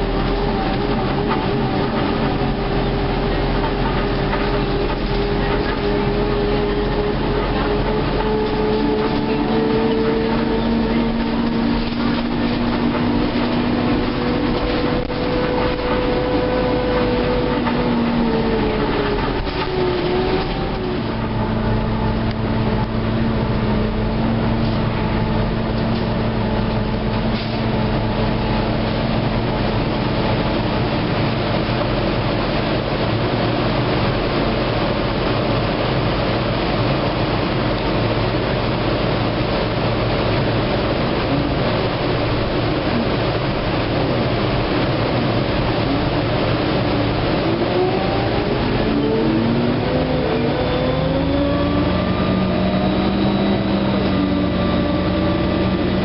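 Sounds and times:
bus engine hum: 0:00.0 - 0:56.0
road noise: 0:00.0 - 0:56.0
whine dropping in pitch: 0:47.5 - 0:56.0.

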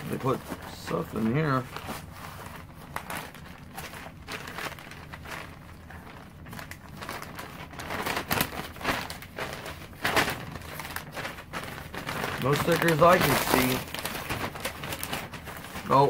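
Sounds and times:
paper packaging rustling: 0:00.0 - 0:16.0.

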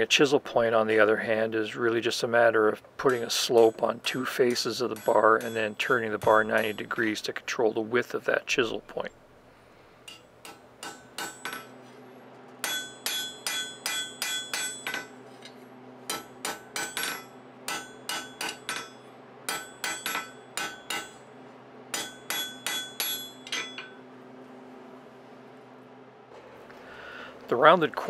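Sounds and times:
hammer striking hot metal on anvil: 0:03.1 - 0:07.2, 0:10.0 - 0:11.8, 0:12.6 - 0:21.3, 0:21.9 - 0:24.0.

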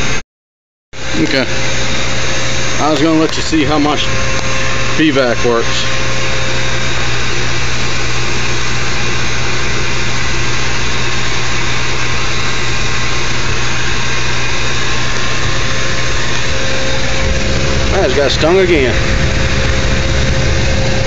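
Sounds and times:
vacuum motor hum: 0:01.0 - 0:21.0
air rushing through hose: 0:15.2 - 0:21.0.

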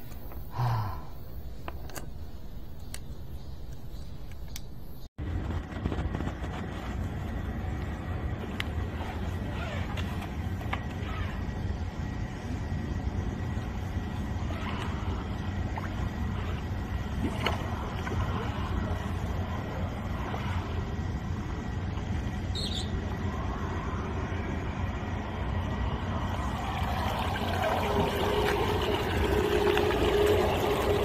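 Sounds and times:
pump engine drone: 0:05.2 - 0:31.0
water rushing: 0:26.2 - 0:31.0.

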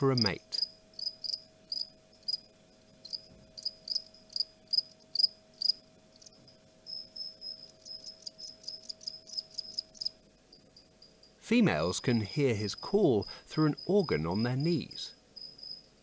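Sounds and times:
cricket chirping: 0:00.1 - 0:16.0.

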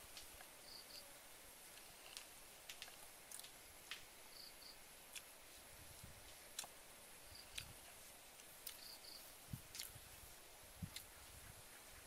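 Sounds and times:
person chewing: 0:02.8 - 0:03.5, 0:07.5 - 0:07.8, 0:08.4 - 0:08.9, 0:09.7 - 0:10.0, 0:10.9 - 0:11.1.

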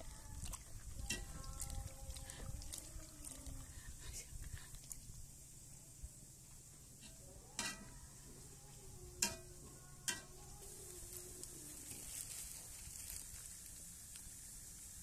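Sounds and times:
nuts frying in hot oil: 0:10.1 - 0:15.0.

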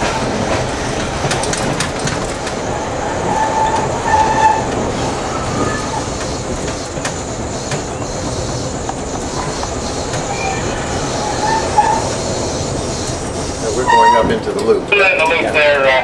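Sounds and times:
clicks over rail joints: 0:00.0 - 0:02.6
streetcar wheels rumbling on rail: 0:00.0 - 0:16.0
high wheel squeals: 0:02.6 - 0:15.5.

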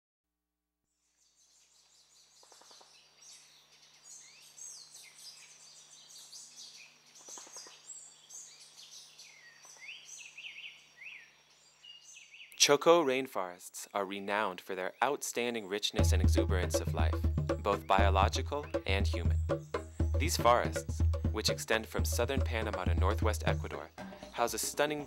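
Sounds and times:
birds chirping and whistling: 0:01.5 - 0:12.5
low rattling bird call: 0:16.3 - 0:21.8.

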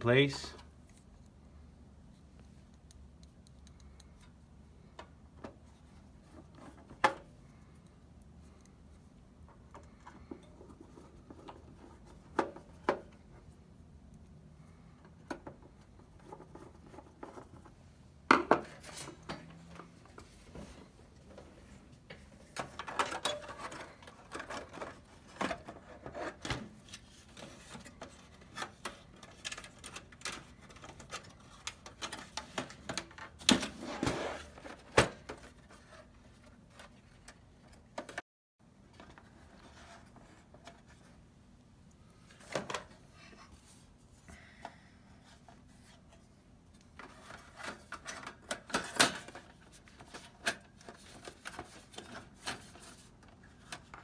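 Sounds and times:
console parts clicks and scrapes: 0:18.6 - 0:38.2, 0:45.3 - 0:54.0.

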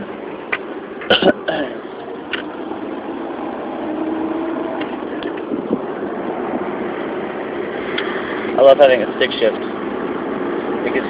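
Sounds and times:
car engine: 0:00.0 - 0:11.0
road noise inside car: 0:00.0 - 0:11.0.

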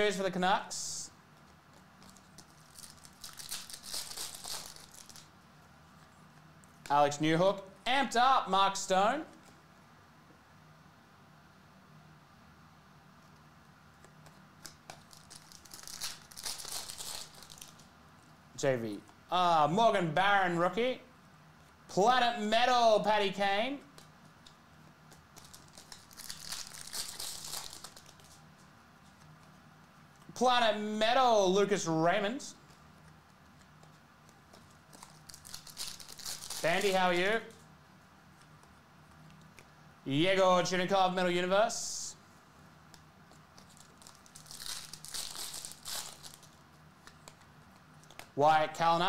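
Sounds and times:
cards rustling and clicking: 0:01.3 - 0:05.3, 0:14.0 - 0:17.9, 0:23.9 - 0:30.3, 0:32.6 - 0:37.7, 0:42.9 - 0:48.3
foil wrapper crinkling: 0:01.6 - 0:05.3, 0:14.6 - 0:17.9, 0:25.1 - 0:28.5, 0:32.7 - 0:37.6, 0:43.3 - 0:47.5.

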